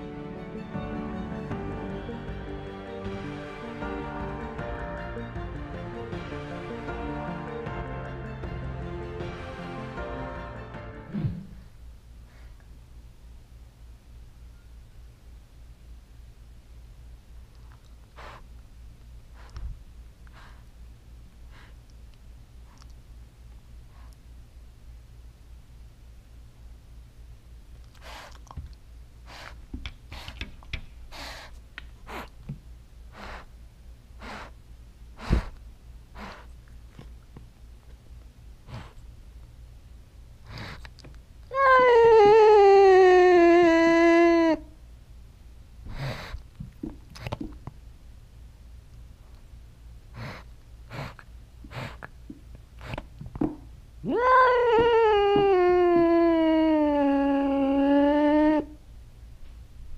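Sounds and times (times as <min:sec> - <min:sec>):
loud low thump: 0:11.1 - 0:11.6
cat breathing heavily: 0:31.1 - 0:32.3, 0:33.1 - 0:33.6, 0:34.2 - 0:34.6, 0:35.2 - 0:36.6, 0:38.6 - 0:39.0, 0:40.4 - 0:41.0, 0:45.9 - 0:46.5, 0:50.1 - 0:52.1
cat yowling: 0:41.5 - 0:44.7, 0:54.0 - 0:58.8.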